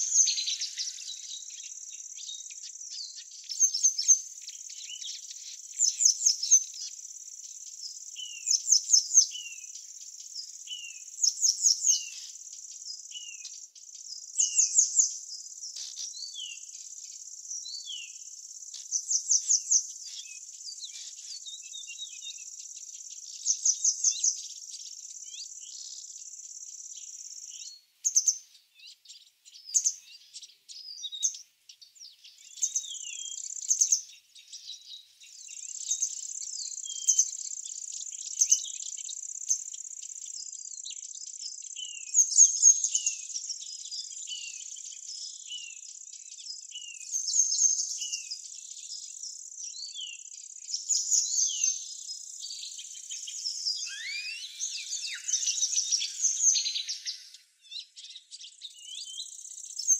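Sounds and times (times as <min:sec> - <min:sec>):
birds chirping: 0:00.0 - 0:40.5, 0:46.6 - 0:59.9
high insect trill: 0:52.8 - 0:57.5
short falling whistles: 0:53.8 - 0:57.3.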